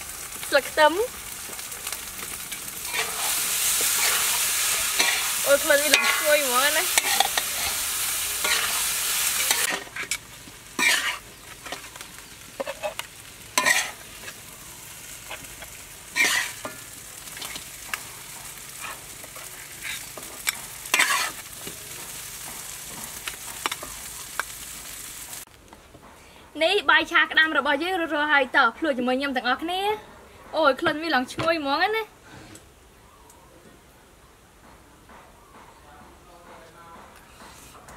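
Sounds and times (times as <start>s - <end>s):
rice sizzling in a wok: 0.0s - 25.6s
metal spatula scraping wok: 1.3s - 24.6s.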